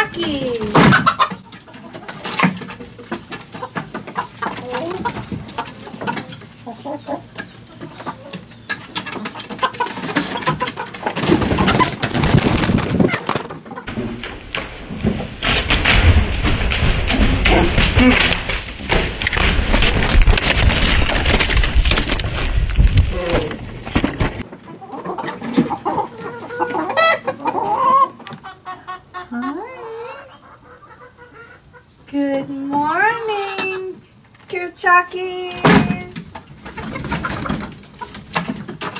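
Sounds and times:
chickens clucking: 0.0 - 13.9, 24.4 - 34.7, 35.4 - 38.9.

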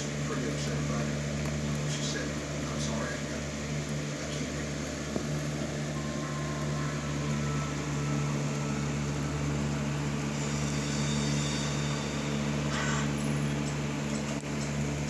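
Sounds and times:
low mechanical motor hum: 0.0 - 15.0.

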